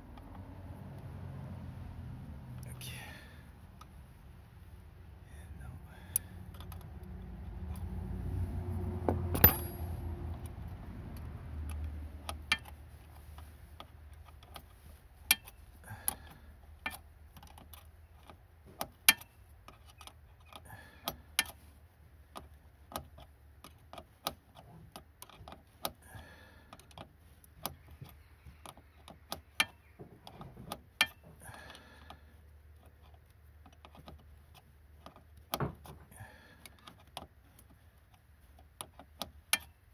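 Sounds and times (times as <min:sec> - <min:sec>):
metallic clank: 0:09.3 - 0:10.0.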